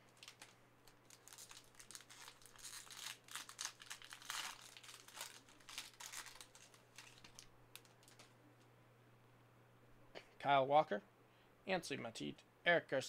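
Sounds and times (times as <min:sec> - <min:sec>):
foil wrapper crinkling and tearing: 0:00.0 - 0:08.3.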